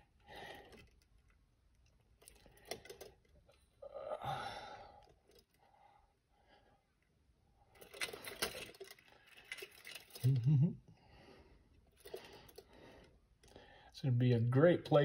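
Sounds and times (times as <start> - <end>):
small metal chain clicks and scraping: 0.0 - 3.8, 5.0 - 5.6, 7.6 - 10.7, 11.7 - 13.6.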